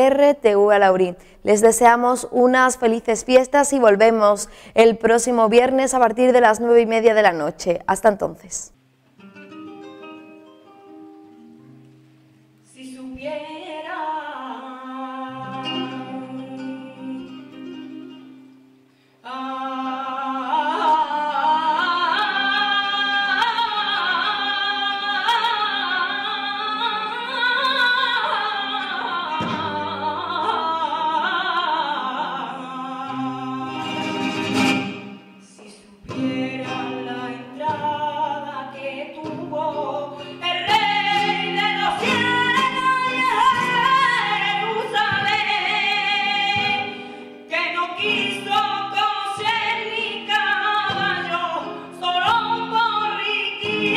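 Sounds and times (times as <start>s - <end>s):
person singing flamenco style: 12.6s - 53.9s.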